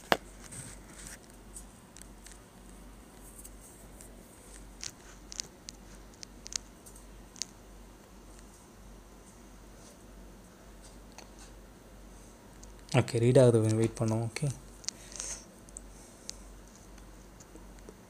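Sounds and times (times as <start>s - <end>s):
steady low hum: 0.0s - 18.0s
small sharp clicks: 4.7s - 7.6s.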